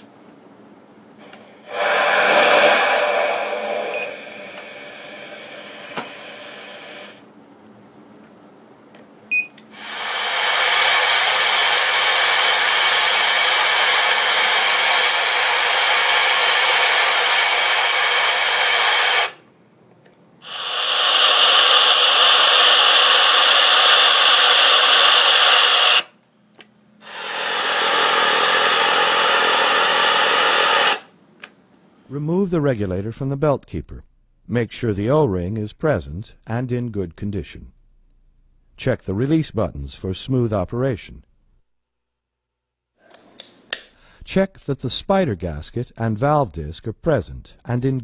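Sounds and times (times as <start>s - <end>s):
compressed air hissing: 1.2s - 7.3s, 9.7s - 19.5s, 20.4s - 26.2s, 27.0s - 31.2s.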